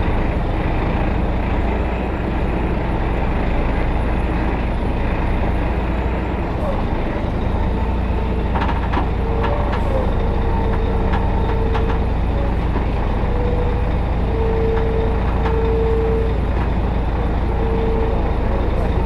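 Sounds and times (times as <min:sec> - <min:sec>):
diesel truck engine running: 0:00.0 - 0:19.0
short squeals: 0:06.6 - 0:19.0
knocks and rattles: 0:08.2 - 0:13.2.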